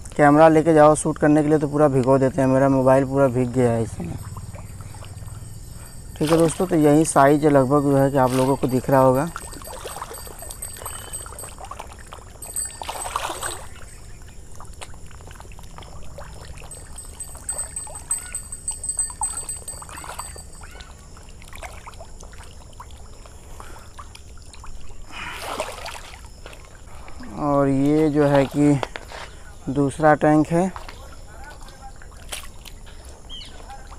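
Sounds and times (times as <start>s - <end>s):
fish splashing in water: 4.1s - 7.0s, 21.4s - 26.8s.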